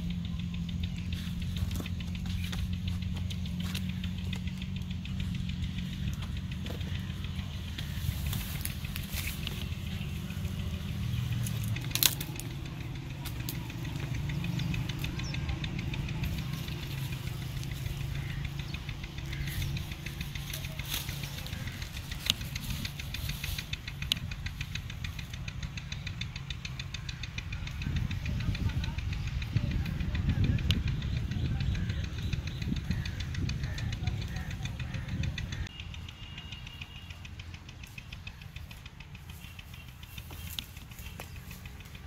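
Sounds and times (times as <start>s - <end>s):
sharp clicks: 0.0s - 42.0s
steady low rumble: 0.0s - 42.0s
leaves and branches rustling: 1.1s - 26.2s, 39.2s - 42.0s.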